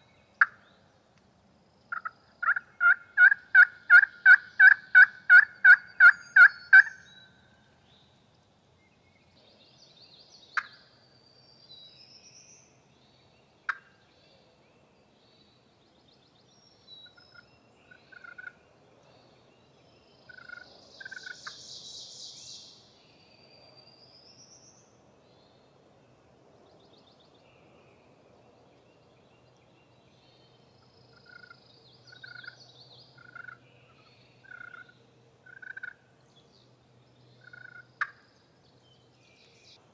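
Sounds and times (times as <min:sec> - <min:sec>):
faint songbird chirps: 0:00.0 - 0:39.9
turkey call yelps: 0:01.9 - 0:07.0
faint turkey calls: 0:01.9 - 0:07.2, 0:10.6 - 0:10.8, 0:13.7 - 0:14.0, 0:17.0 - 0:18.6, 0:20.3 - 0:21.6, 0:31.1 - 0:36.0, 0:37.4 - 0:38.3.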